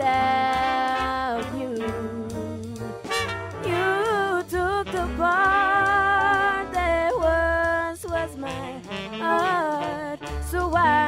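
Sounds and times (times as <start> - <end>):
woman singing slow song: 0.0 - 3.0, 3.6 - 11.0
soft instrumental backing: 0.0 - 11.0.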